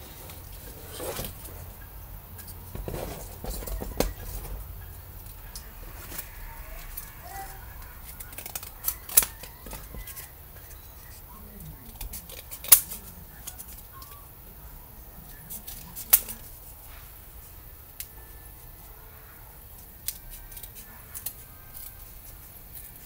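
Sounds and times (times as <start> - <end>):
cardboard and paper rustling: 0.0 - 1.8, 2.4 - 14.2.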